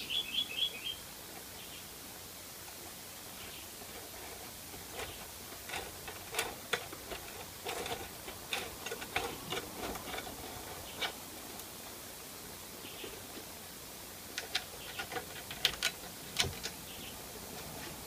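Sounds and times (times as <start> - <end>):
faint steady hiss: 0.0 - 18.0
light clicks and taps of parts: 14.3 - 16.8.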